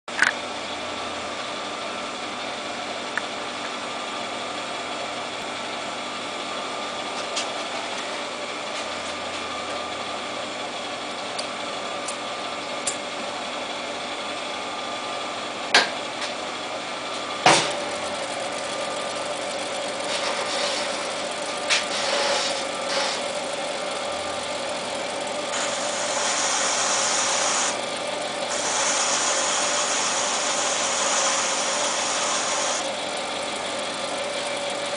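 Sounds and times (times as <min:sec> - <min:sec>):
lathe humming: 0:18.0 - 0:34.9
hiss: 0:25.6 - 0:27.8, 0:28.5 - 0:32.8.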